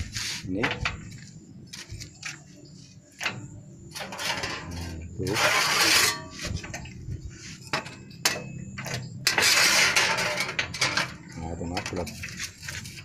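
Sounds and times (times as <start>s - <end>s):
metal plate clanking on steel: 3.2s - 7.0s, 7.6s - 12.6s
metal plate scraping rattle: 3.2s - 7.0s, 7.6s - 13.0s.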